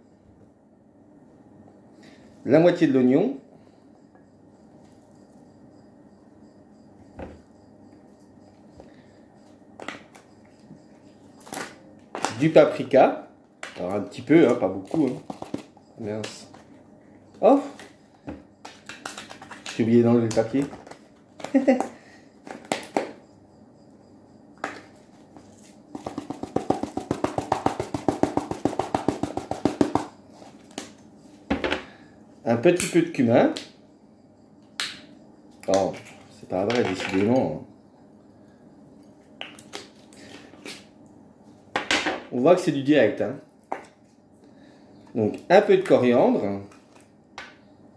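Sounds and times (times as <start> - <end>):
spice jar shaking: 25.9 - 30.2.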